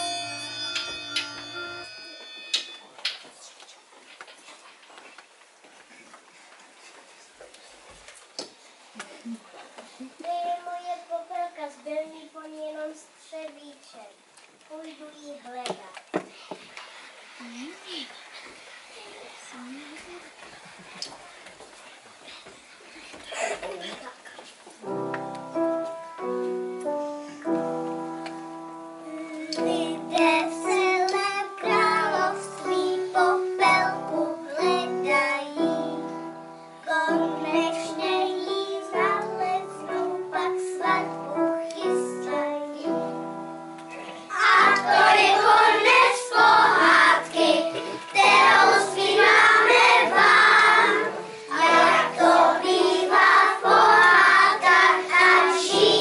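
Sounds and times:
piano accompaniment: 0:00.0 - 0:02.9, 0:24.8 - 0:56.0
children singing: 0:29.1 - 0:35.8, 0:44.0 - 0:56.0.

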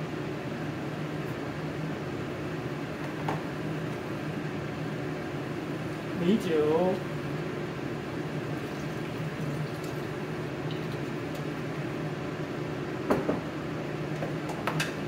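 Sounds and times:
water boiling and bubbling: 0:04.2 - 0:12.0.

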